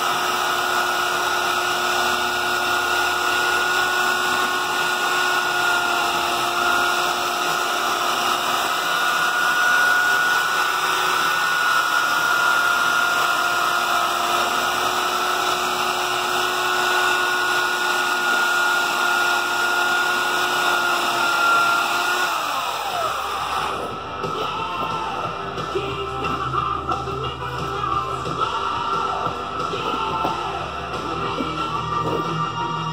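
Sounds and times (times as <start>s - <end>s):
belt sander grinding plastic: 0.0s - 32.9s.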